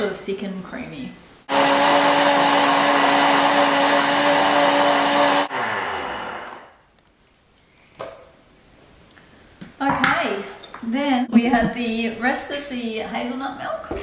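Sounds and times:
blender running: 1.5s - 6.8s.

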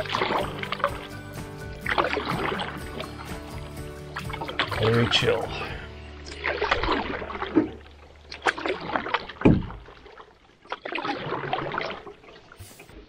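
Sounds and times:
paddle swishing in water: 0.0s - 13.0s
paddle knocks: 8.8s - 10.0s.

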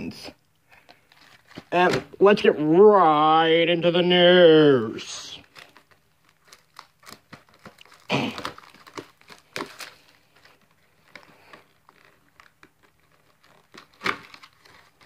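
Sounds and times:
plastic shrink wrap crinkling: 0.5s - 2.5s, 4.8s - 15.0s
box opening rustle: 0.8s - 2.2s, 5.4s - 15.0s.

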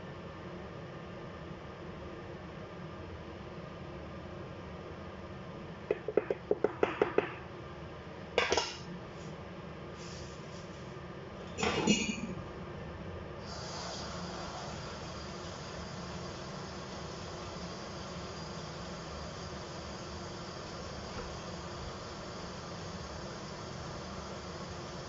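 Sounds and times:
wooden spoon knocking on pot: 5.9s - 7.4s
faint steady hiss: 13.3s - 25.0s.

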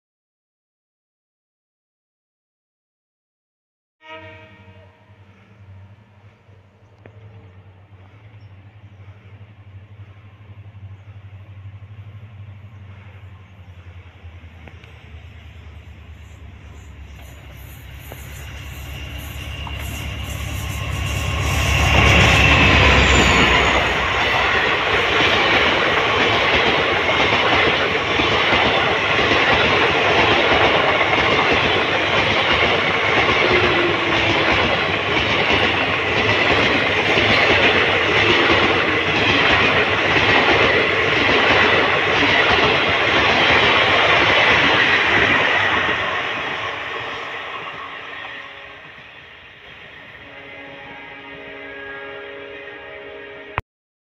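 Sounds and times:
diesel locomotive engine rumble: 4.2s - 52.0s
train wheels clattering over rails: 10.8s - 49.8s.

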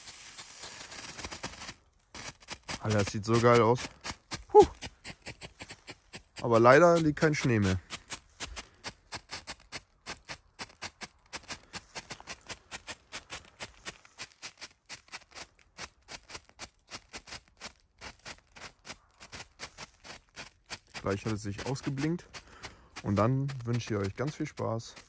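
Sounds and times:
pyrotechnic strobe pops: 0.0s - 3.8s.

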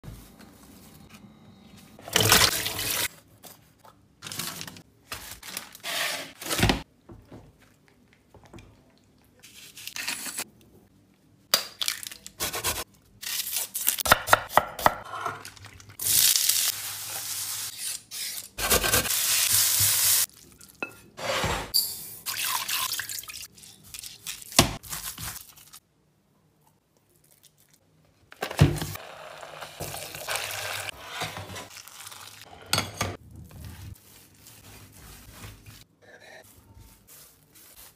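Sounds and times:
onion sizzling in frying pan: 19.1s - 20.3s.

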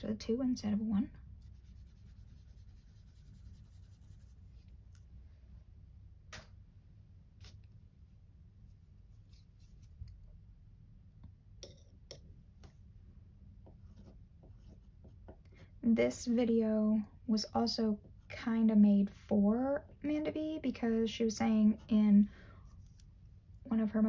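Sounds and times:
low steady hum: 0.0s - 24.0s
swab rubbing on paper: 1.4s - 5.1s, 8.5s - 10.0s.

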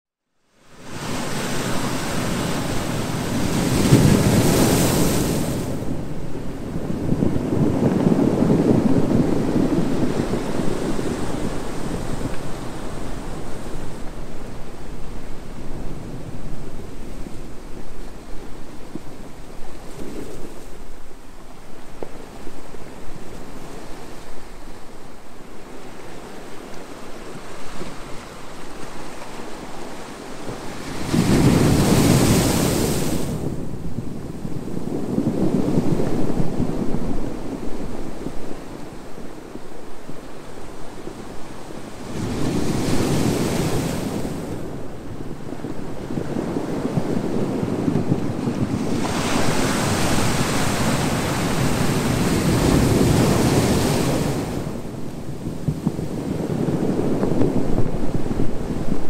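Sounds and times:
low rumble of sea: 0.4s - 59.0s
small waves breaking on beach: 0.6s - 20.9s, 34.4s - 59.0s.

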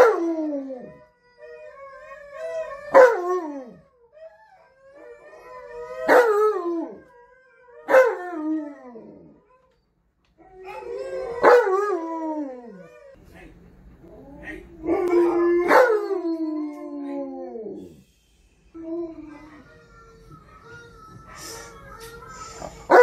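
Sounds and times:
dogs howling: 0.0s - 9.8s, 10.4s - 13.2s, 14.1s - 18.0s.

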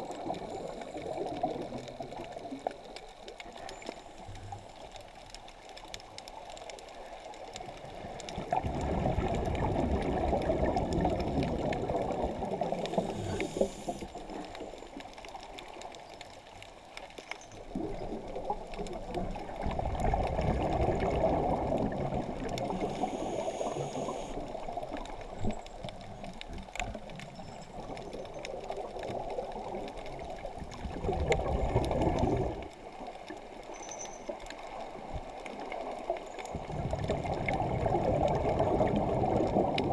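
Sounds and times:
faint clicks: 0.0s - 39.9s
muffled underwater rushing water: 0.0s - 39.9s.

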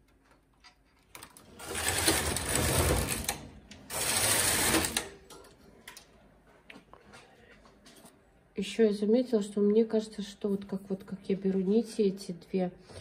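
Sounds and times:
knitting machine carriage clatter: 1.2s - 5.1s.

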